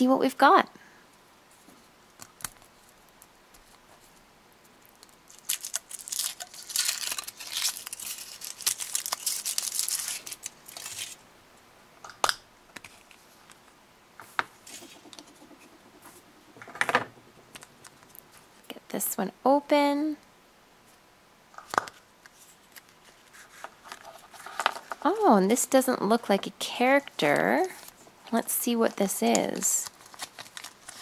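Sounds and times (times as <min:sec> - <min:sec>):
foil wrapper crinkling: 0:04.9 - 0:11.2, 0:28.8 - 0:31.0.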